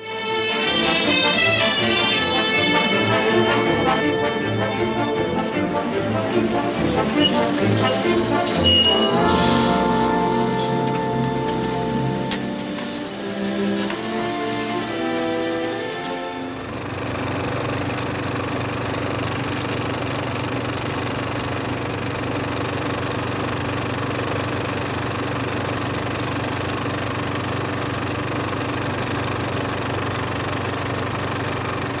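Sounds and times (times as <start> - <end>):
film projector whirring: 16.3 - 32.0.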